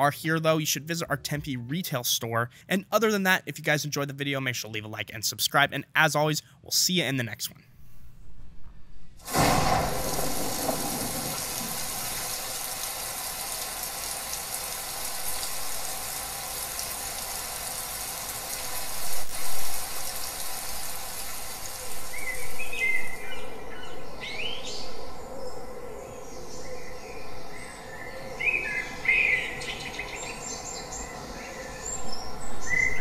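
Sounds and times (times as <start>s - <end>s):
rushing water: 9.2s - 23.3s
birds chirping: 22.0s - 33.0s.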